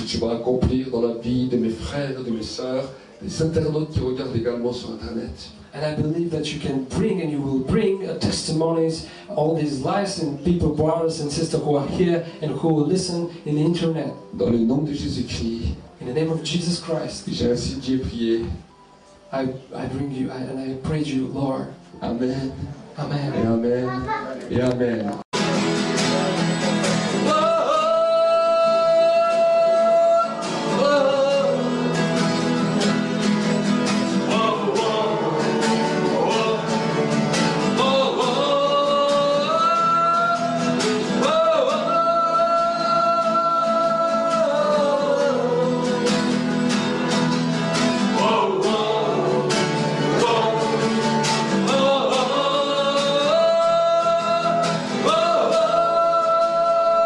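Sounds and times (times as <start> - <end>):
guitar accompaniment: 0.0 - 57.0
person singing long notes: 27.1 - 32.1, 34.2 - 47.1, 48.0 - 57.0.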